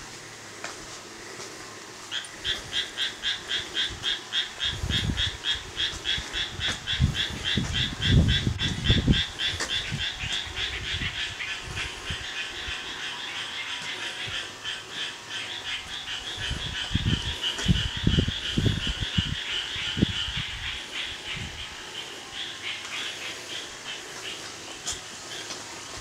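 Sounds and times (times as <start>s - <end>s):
frog croaking: 2.1s - 25.6s
low rumbling: 2.4s - 22.4s.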